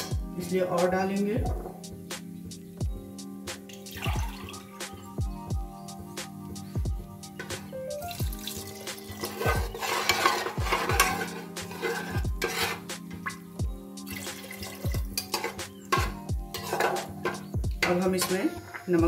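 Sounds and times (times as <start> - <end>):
background music with bass beat: 0.0 - 19.0
water poured into a pot: 3.8 - 4.7, 8.1 - 11.2, 14.1 - 15.6
spoon stirring food: 8.3 - 18.8.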